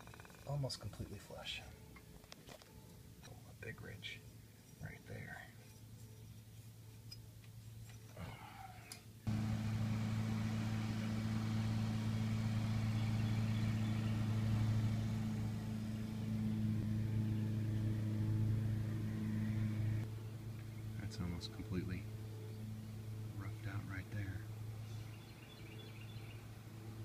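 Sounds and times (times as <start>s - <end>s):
electric motor humming: 9.3s - 20.1s.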